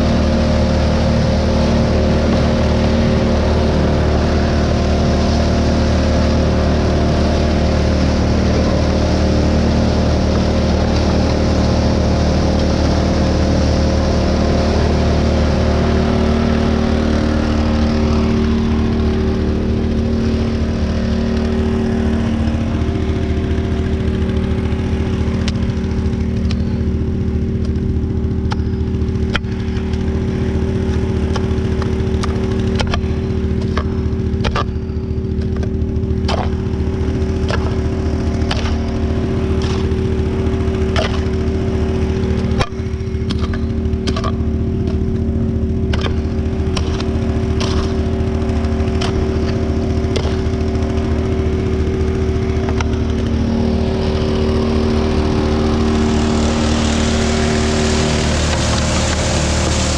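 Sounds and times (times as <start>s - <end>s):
water pump engine running: 0.0s - 59.9s
rushing water and gravel: 53.4s - 59.9s.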